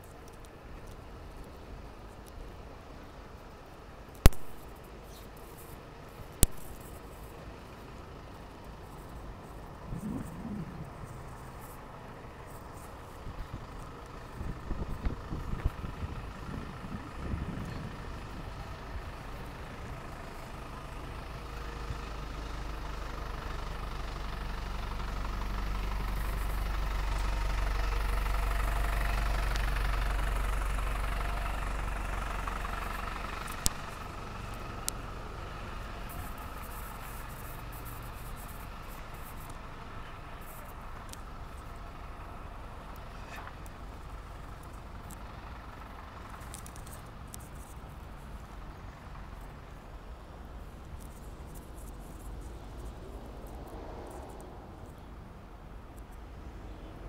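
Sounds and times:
street noise: 0.0s - 57.0s
vehicle engine rumbling: 0.0s - 57.0s.

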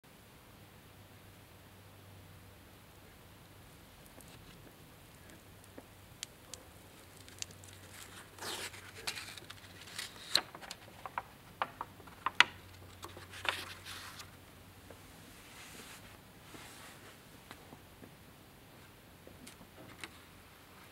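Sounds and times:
old book pages turning: 4.0s - 5.9s, 6.5s - 14.4s
stiff paper crackling: 4.0s - 11.3s, 12.0s - 14.4s.

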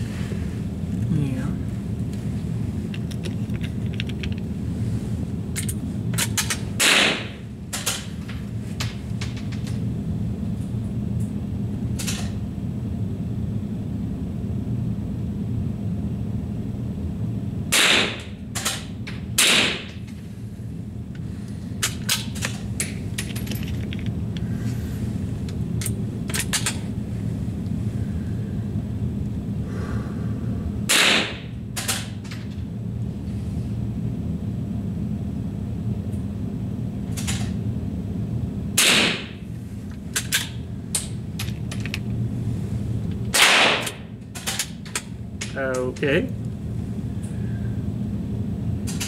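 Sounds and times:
steady low hum: 0.0s - 49.0s
rifle shots: 6.8s - 7.3s, 19.4s - 19.9s, 30.9s - 31.4s, 43.4s - 44.0s.

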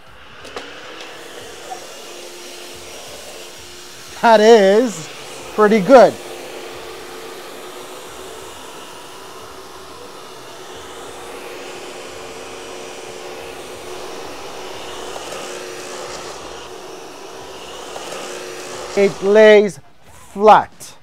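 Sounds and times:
stick vacuum running on carpet: 0.0s - 21.0s.

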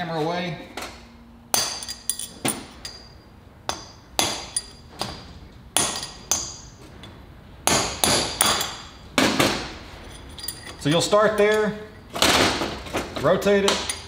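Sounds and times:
hammer striking steel punch: 1.5s - 3.0s, 3.7s - 5.2s, 5.8s - 6.7s, 7.6s - 9.7s.

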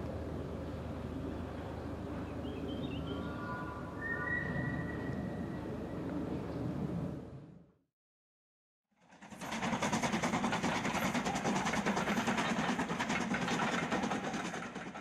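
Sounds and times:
steam train running: 9.0s - 15.0s.

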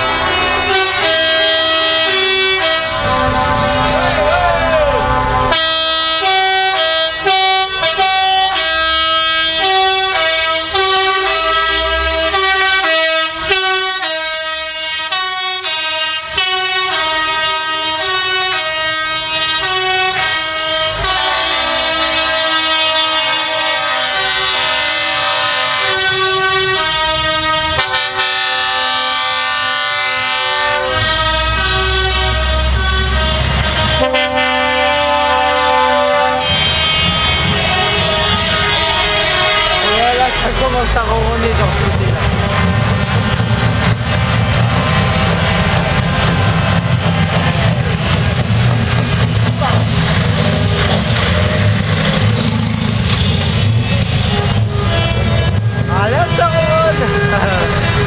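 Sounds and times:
musical air horn tune: 0.0s - 43.2s, 52.2s - 58.0s
low engine rumble: 36.6s - 58.0s.

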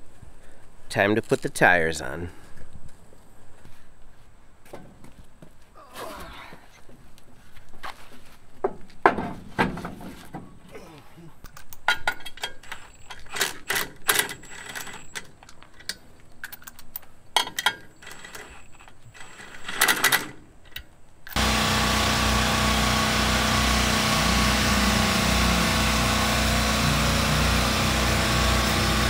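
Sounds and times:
generator droning: 21.3s - 29.0s
chainsaw running: 21.4s - 29.0s.

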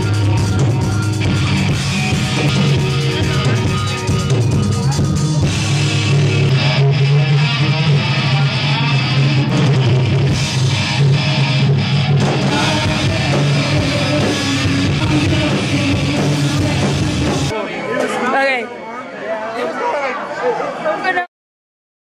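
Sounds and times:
heavy rock music: 0.0s - 17.5s.

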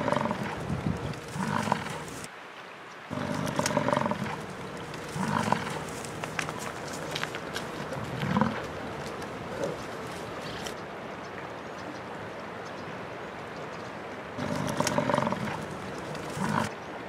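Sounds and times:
bison bellowing: 0.0s - 2.3s, 3.1s - 10.7s, 14.4s - 16.7s.

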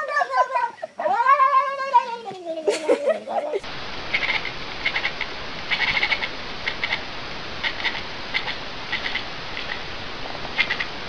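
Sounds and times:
cat yowling: 0.0s - 2.3s
steady hiss: 0.0s - 11.0s.

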